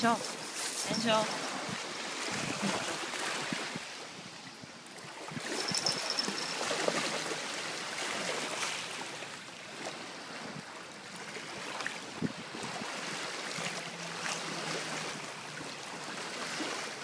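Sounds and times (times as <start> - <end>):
sea water sloshing and lapping: 0.0 - 17.0
dog wading through water: 5.4 - 10.4.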